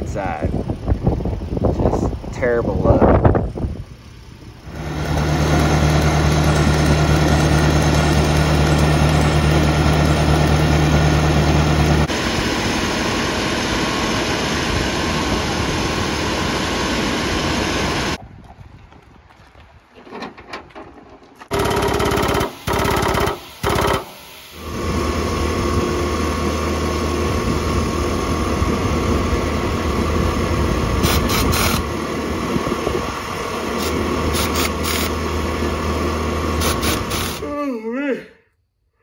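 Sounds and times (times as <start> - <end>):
steady machine noise with hum: 0.0 - 18.2, 21.5 - 37.8
pneumatic impact wrench bursts: 21.5 - 25.6, 31.0 - 32.0, 33.6 - 35.2, 36.4 - 37.5.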